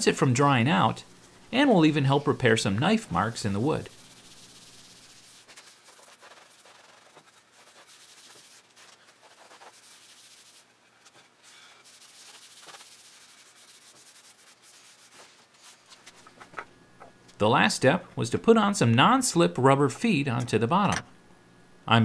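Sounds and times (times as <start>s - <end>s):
cloth rag wiping wood: 0.2s - 16.2s.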